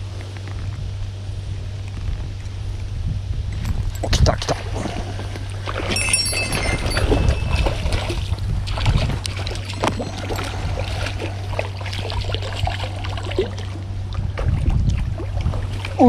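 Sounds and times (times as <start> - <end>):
steady low rumble: 0.0 - 16.0
river water running: 3.8 - 16.0
small splashes and knocks: 4.0 - 16.0.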